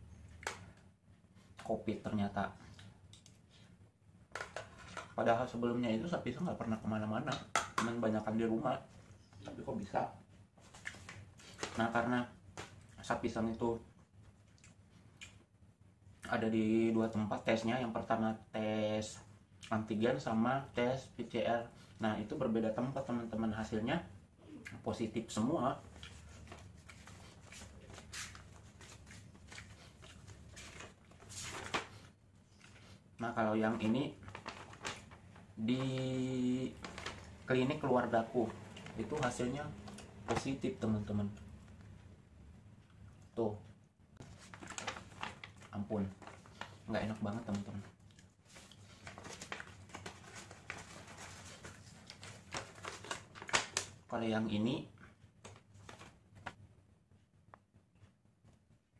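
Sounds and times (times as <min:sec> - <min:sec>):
paper sheets rustling: 0:26.1 - 0:32.1, 0:33.6 - 0:39.6, 0:44.2 - 0:54.0, 0:55.4 - 0:56.6.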